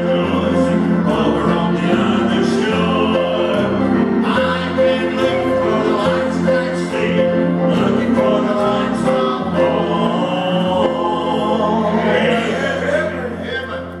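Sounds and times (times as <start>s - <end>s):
man and woman singing a duet: 0.0s - 13.8s
instrumental accompaniment: 0.0s - 14.0s.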